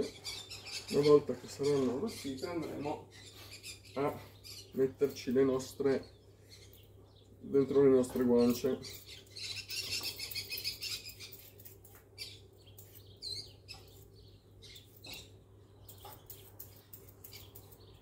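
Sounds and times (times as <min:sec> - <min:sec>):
budgerigars and parrots chirping: 0:00.0 - 0:18.0
peeler scraping carrot: 0:15.9 - 0:18.0.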